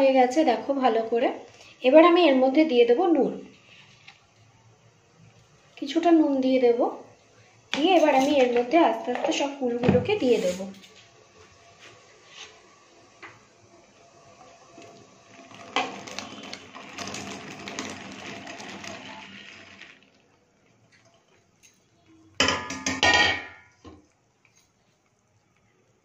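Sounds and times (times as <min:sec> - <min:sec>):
berries poured into water: 0:15.3 - 0:20.3.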